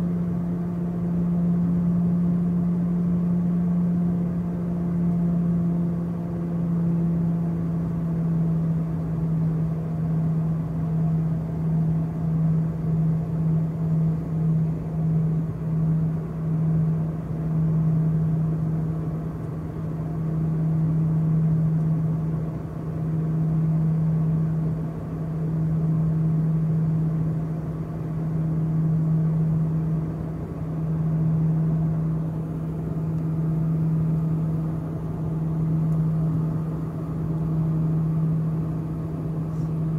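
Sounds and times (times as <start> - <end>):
propeller plane cabin hum: 0.0 - 39.9.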